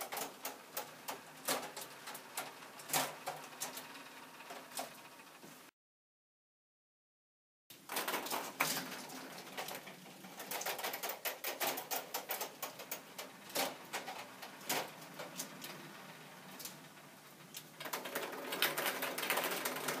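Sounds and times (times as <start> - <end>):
plastic mechanism clicking and rattling: 0.0 - 3.9, 7.9 - 15.8, 17.5 - 20.0.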